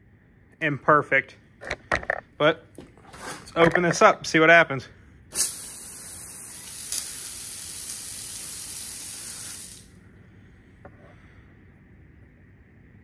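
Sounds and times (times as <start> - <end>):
water spraying from pipe: 5.3 - 9.9.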